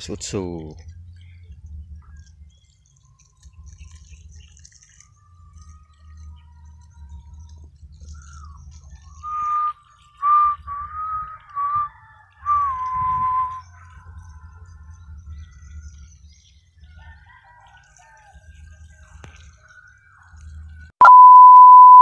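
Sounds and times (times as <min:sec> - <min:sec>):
high whistle-like notes: 0:09.1 - 0:13.9.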